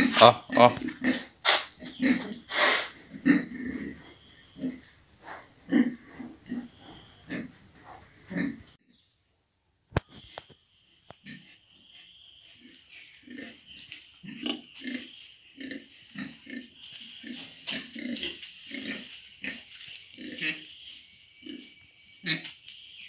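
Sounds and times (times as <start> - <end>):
pigs grunting: 0.0 - 8.8, 12.6 - 20.7, 21.4 - 22.5
steady high hiss: 2.4 - 3.0.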